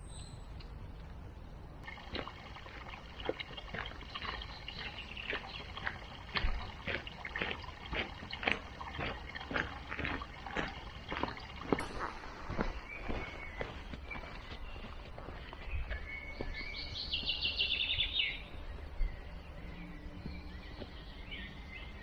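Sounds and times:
footsteps on gravel: 0:01.8 - 0:18.8.

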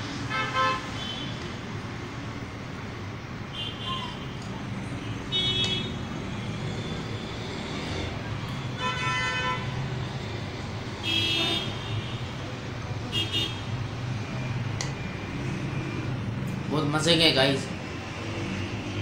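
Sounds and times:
road traffic engine hum: 0:00.0 - 0:19.0
vehicle horns tooting: 0:00.3 - 0:01.4, 0:05.3 - 0:06.0, 0:08.7 - 0:09.8, 0:11.0 - 0:12.3, 0:13.1 - 0:13.7.

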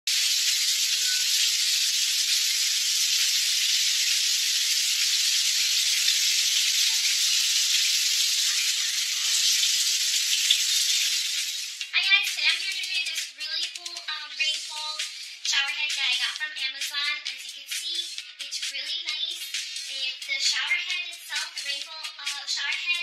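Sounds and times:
shower water spraying: 0:00.1 - 0:11.9.

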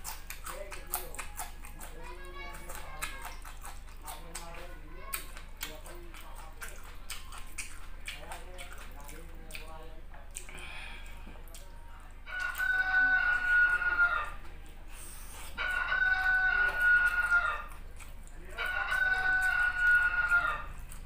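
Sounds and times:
rooster crow ringtone: 0:12.3 - 0:14.4, 0:15.6 - 0:17.7, 0:18.6 - 0:20.7.

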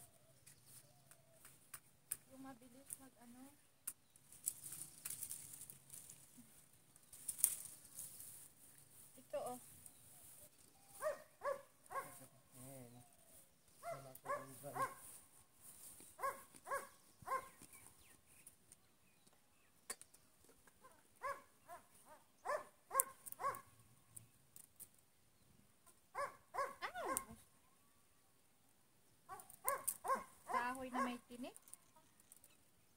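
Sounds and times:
dog barking: 0:11.0 - 0:12.3, 0:13.8 - 0:15.1, 0:16.2 - 0:17.6, 0:21.2 - 0:23.7, 0:26.2 - 0:27.4, 0:29.3 - 0:31.2.

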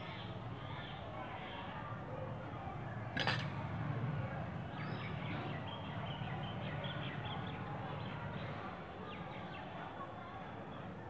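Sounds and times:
birds chirping: 0:04.5 - 0:08.6.

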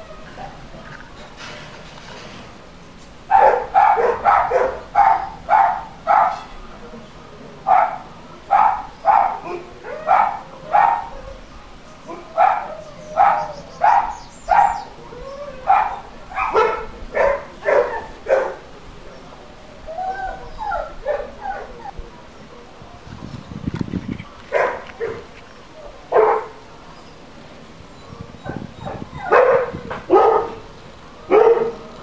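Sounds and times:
dog barking: 0:03.3 - 0:06.5, 0:07.7 - 0:11.1, 0:12.1 - 0:14.8, 0:15.7 - 0:18.6, 0:24.5 - 0:25.2, 0:26.1 - 0:26.6, 0:28.9 - 0:30.6, 0:31.3 - 0:31.8.

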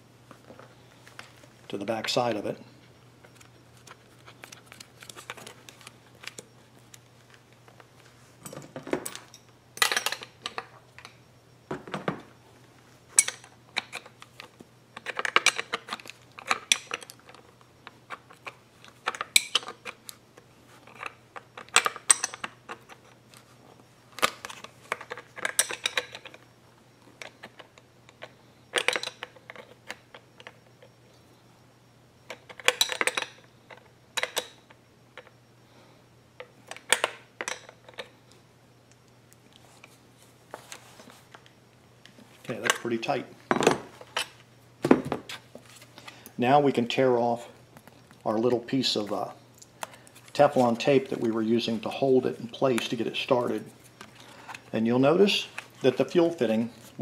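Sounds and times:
clicks and rattles of parts: 0:03.3 - 0:11.2, 0:13.2 - 0:23.5, 0:24.1 - 0:30.9, 0:32.2 - 0:35.3, 0:36.4 - 0:38.2, 0:40.6 - 0:46.3.

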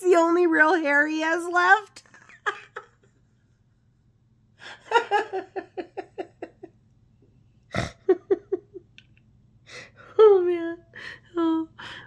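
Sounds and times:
woman laughing: 0:02.0 - 0:03.2, 0:04.6 - 0:06.8, 0:07.7 - 0:09.0.

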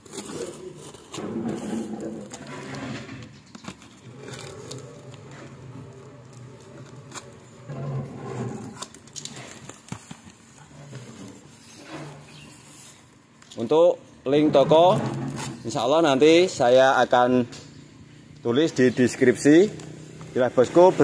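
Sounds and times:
scraping on cardboard and tape: 0:00.0 - 0:13.2, 0:14.4 - 0:15.8
cardboard box being opened: 0:03.5 - 0:07.6.

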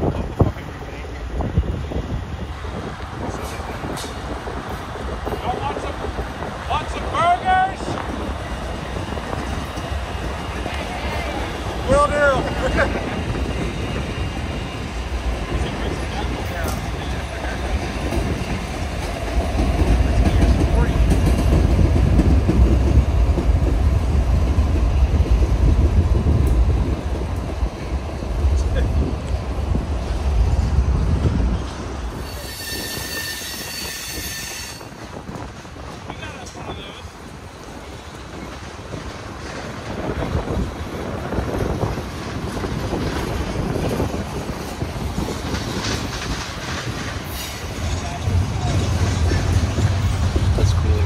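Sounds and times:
freight train passing: 0:00.0 - 0:51.0
wheels clacking over rail joints: 0:32.2 - 0:51.0.

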